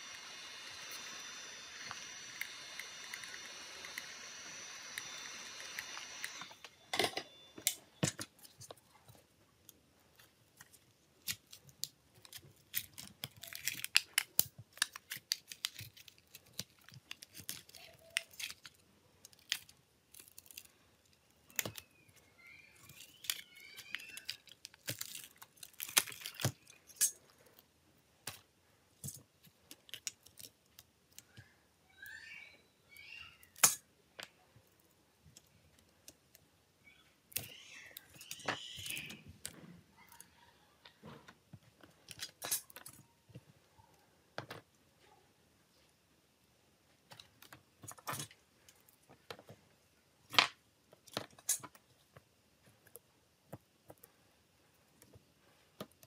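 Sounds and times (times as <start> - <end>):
high squeaky chirping: 21.6 - 24.5, 31.9 - 33.6, 36.8 - 39.3.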